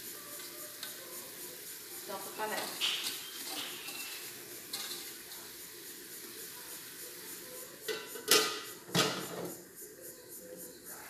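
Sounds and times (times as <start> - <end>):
metal lid clanking on pot: 2.6 - 5.1, 7.9 - 9.5.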